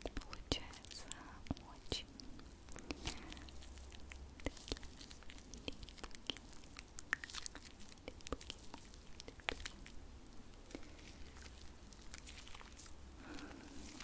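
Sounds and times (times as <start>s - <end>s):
sticky clicks and crackles: 2.4s - 10.0s
hands rubbing skin: 10.7s - 14.0s.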